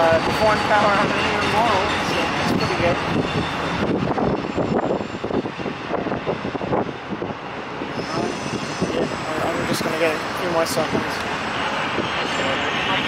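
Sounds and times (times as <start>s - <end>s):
freight cars clanking: 0.0s - 5.5s
train wheels rumbling on rail: 0.0s - 13.0s.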